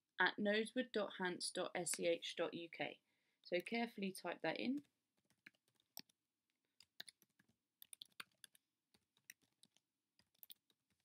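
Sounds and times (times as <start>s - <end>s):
faint keyboard typing: 4.7s - 11.0s.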